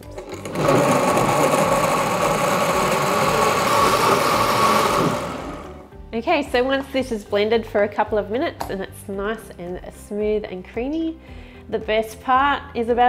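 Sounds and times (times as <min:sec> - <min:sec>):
blender motor whining: 0:00.0 - 0:05.8.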